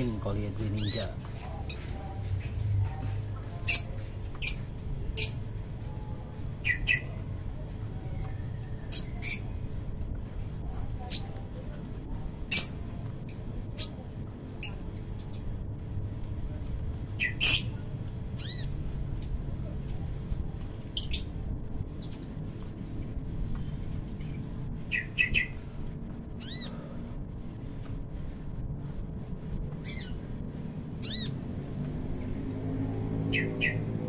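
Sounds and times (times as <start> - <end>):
low rumble: 1.2 - 34.0
bird high-pitched calls: 6.6 - 7.2, 8.5 - 9.6, 17.2 - 17.8, 18.4 - 18.8, 24.2 - 25.6, 26.4 - 26.8, 29.8 - 30.2, 31.0 - 31.4, 33.3 - 34.0.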